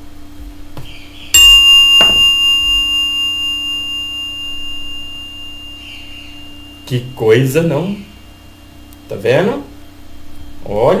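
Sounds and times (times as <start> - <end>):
faint low hum: 0.0 - 11.0
metallic bell chime ringing: 1.4 - 8.8.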